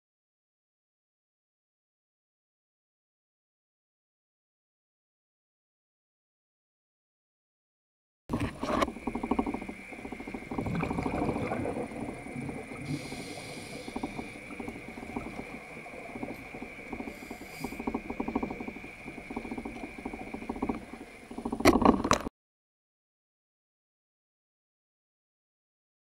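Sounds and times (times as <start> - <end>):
exhaled bubbles underwater: 8.3 - 21.7
regulator inhale hiss: 12.2 - 18.2.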